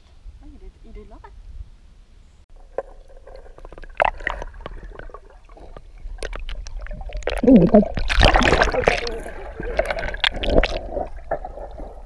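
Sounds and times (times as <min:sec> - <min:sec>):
underwater gurgling and clicks: 0:02.6 - 0:12.0.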